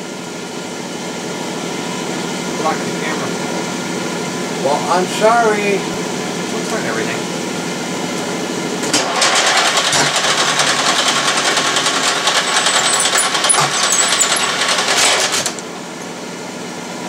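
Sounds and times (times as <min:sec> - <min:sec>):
metal lathe clattering: 0:09.1 - 0:15.6.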